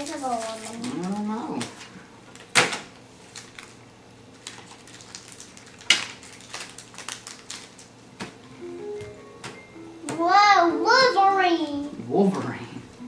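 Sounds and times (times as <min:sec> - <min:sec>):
wrapper crinkling: 0:00.0 - 0:02.6, 0:03.2 - 0:08.2.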